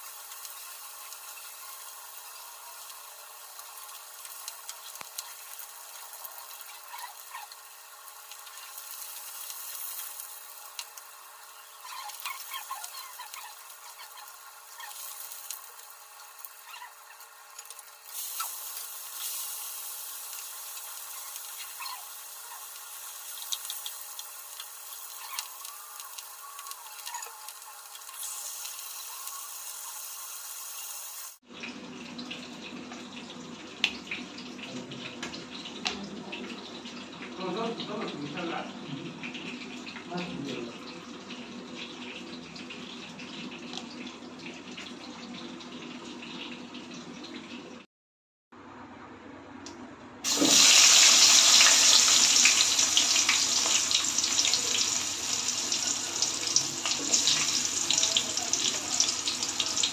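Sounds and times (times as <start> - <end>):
fish sizzling in hot oil: 0.0 - 31.4, 50.2 - 59.9.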